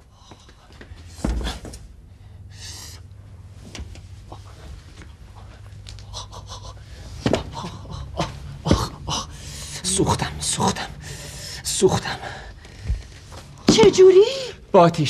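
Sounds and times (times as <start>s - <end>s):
man gasping and panting: 5.5s - 10.0s.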